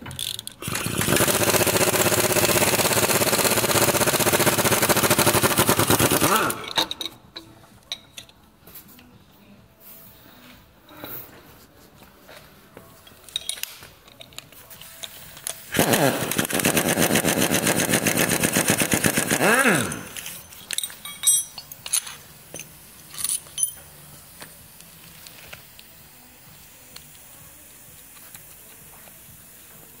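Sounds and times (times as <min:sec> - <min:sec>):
metal tools clinking: 0:06.5 - 0:08.4, 0:13.0 - 0:15.7, 0:19.8 - 0:24.1
impact wrench hammering: 0:15.7 - 0:23.8.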